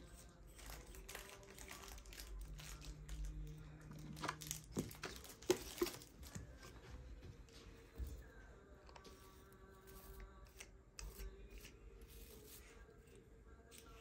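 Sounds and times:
plastic packaging crinkling: 0.5 - 6.5.

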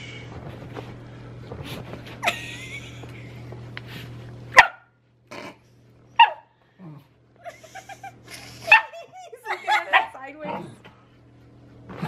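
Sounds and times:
small dog barking: 4.5 - 4.9, 6.2 - 6.5, 8.7 - 9.0, 9.7 - 10.7.

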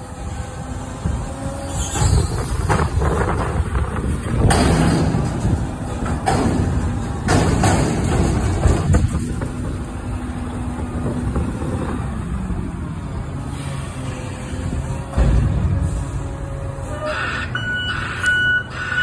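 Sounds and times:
diesel engine running hard: 0.0 - 19.0
metal bangs and rattles: 2.0 - 12.0, 14.8 - 16.5.

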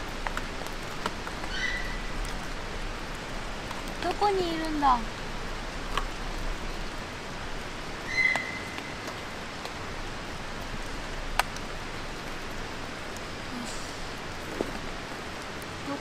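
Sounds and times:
steady rain falling: 0.0 - 16.0
high whistling animal call: 1.5 - 2.0, 8.1 - 8.7.

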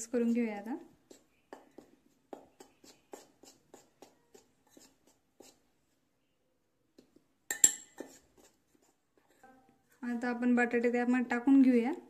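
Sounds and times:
spoon scraping metal bowl: 2.4 - 5.6, 7.5 - 9.7
metallic clink: 7.5 - 8.0.

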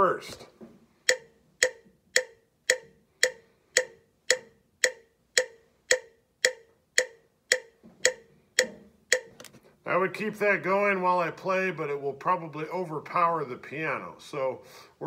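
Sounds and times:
metronome clicking: 1.1 - 9.5.

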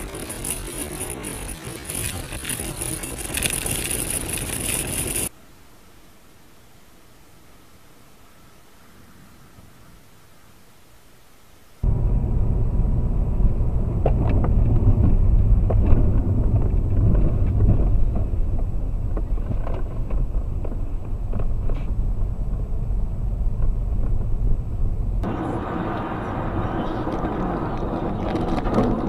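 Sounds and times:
car engine and road rumble: 0.0 - 5.3, 11.8 - 29.0.

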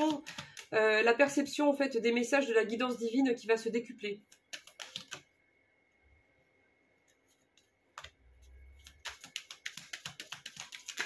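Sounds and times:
cards being shuffled: 0.0 - 0.7, 4.3 - 5.3, 7.3 - 11.0.

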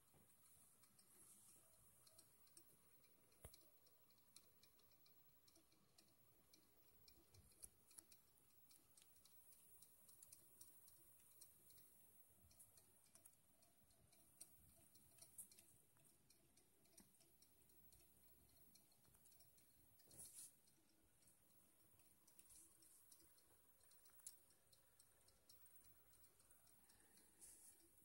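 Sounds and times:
small clicks: 0.0 - 28.0.

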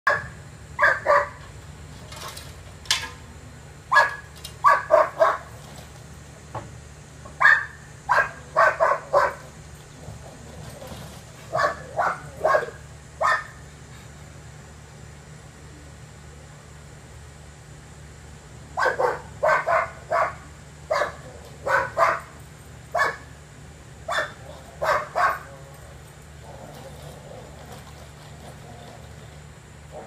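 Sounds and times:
dog barking: 0.1 - 1.4, 3.9 - 5.5, 7.4 - 9.5, 11.5 - 13.6, 18.8 - 23.3, 24.1 - 25.6
steady low hum: 0.1 - 30.0.

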